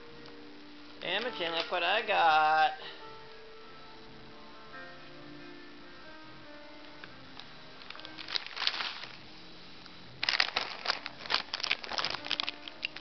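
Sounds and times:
chip bag crinkling: 7.8 - 9.2, 10.2 - 13.0.

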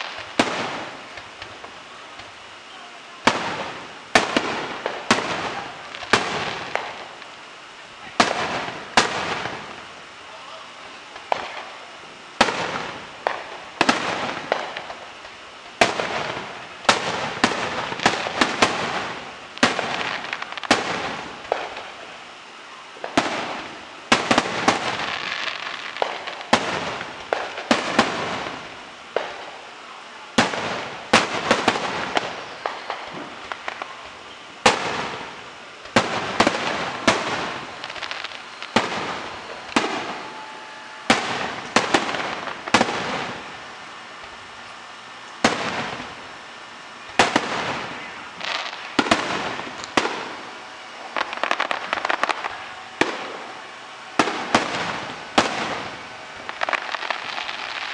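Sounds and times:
firework shells bursting: 11.1 - 22.1, 23.0 - 29.7, 30.4 - 44.4.

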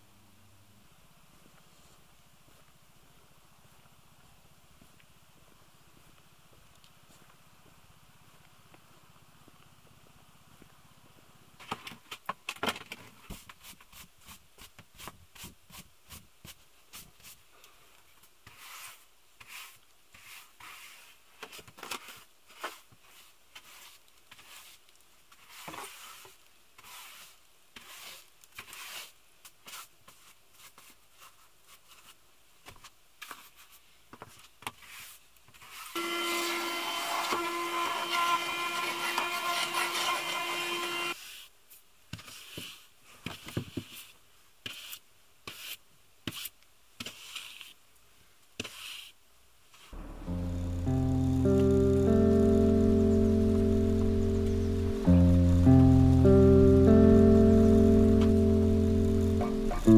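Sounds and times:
hand brush sweeping floor: 13.2 - 17.5, 18.4 - 32.2, 33.2 - 36.0, 41.1 - 41.5, 42.2 - 47.8, 48.6 - 49.9
handheld vacuum cleaner whine: 36.0 - 41.2.

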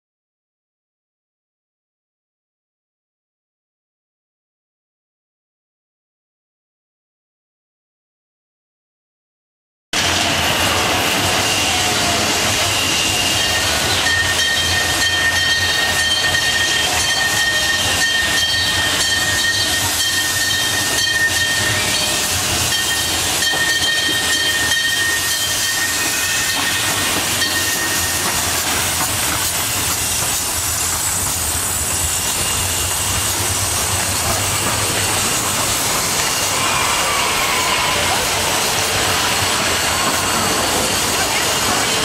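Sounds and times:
steam hissing: 10.0 - 42.0.

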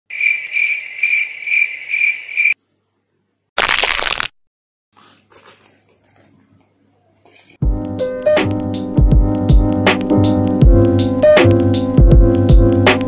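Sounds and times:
insect chirping: 0.1 - 2.6.

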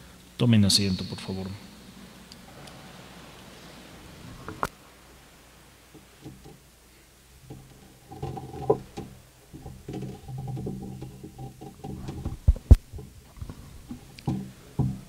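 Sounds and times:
faint steady tones: 0.0 - 15.0
microphone handling rustling: 7.5 - 15.0.

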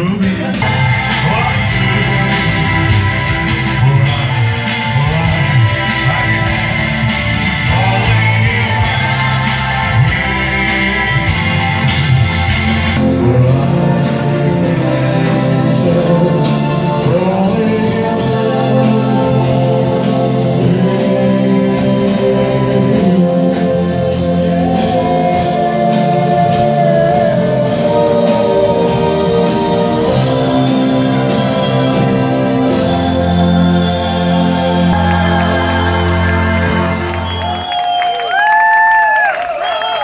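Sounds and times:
rock and roll band playing: 0.0 - 38.9
person singing long notes: 13.0 - 37.6.

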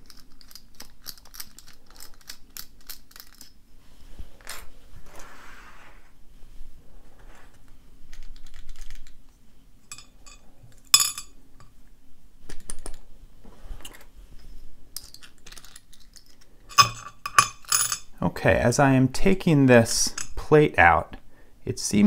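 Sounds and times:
padlock parts clicking: 0.0 - 3.6, 15.0 - 18.0
metal parts knocking on metal tray: 16.7 - 18.1.

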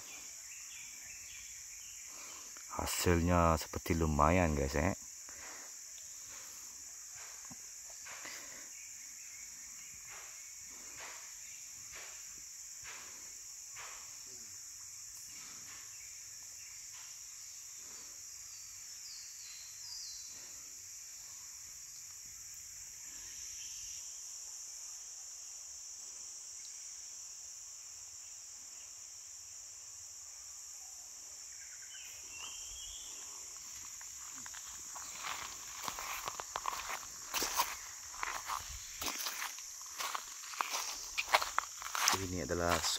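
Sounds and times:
insects chorus: 0.0 - 42.9.

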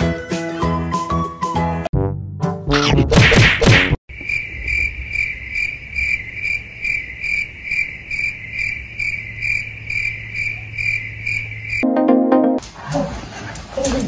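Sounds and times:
cricket chirping: 4.1 - 11.8.

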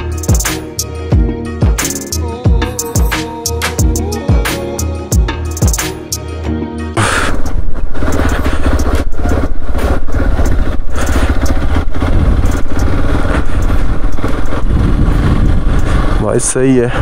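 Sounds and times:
background music: 0.0 - 9.0
loud rushing noise: 7.0 - 17.0
motorcycle engine running: 7.0 - 17.0.

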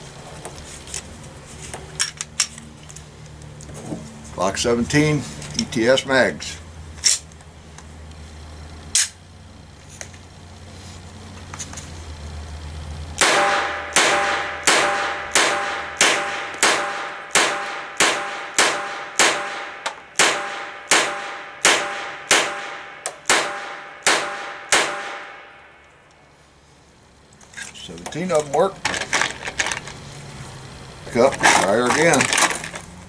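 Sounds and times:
pistol shots: 13.2 - 25.5.

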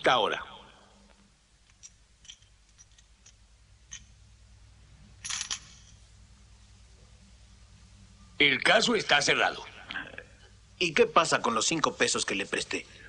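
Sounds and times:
metal coins clinking: 1.6 - 4.2, 5.2 - 6.1.

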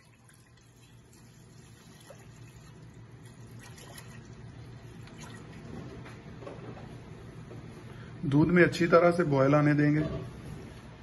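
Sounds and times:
milk pouring into a saucepan: 0.0 - 5.7.

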